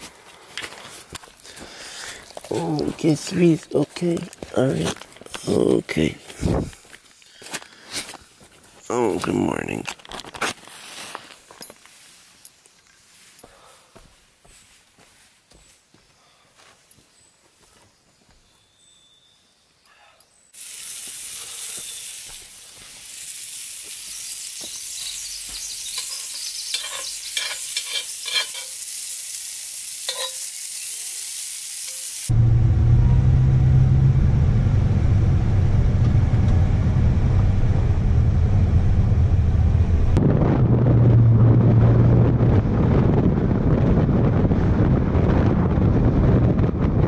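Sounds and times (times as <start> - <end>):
wind rush: 6.4 - 6.8, 32.3 - 47.0
food sizzling in a skillet: 20.6 - 32.3
utensil scraping and tapping pan: 25.9 - 28.8, 30.1 - 30.4
car engine and road drone: 32.3 - 47.0.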